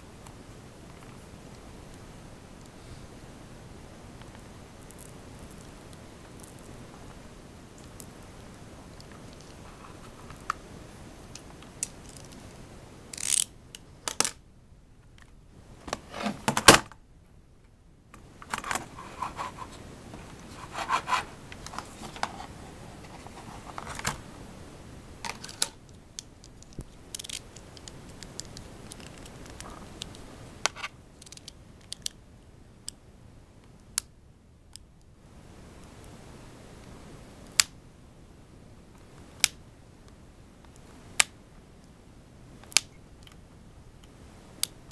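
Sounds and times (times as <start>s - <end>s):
knife blade scraping rubber: 20.5s - 22.5s.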